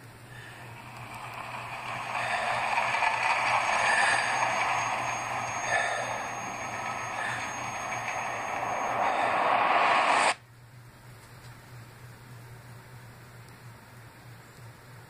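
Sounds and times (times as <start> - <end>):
steady low hum: 0.0 - 15.0
rushing noise from tv speaker: 0.3 - 10.4.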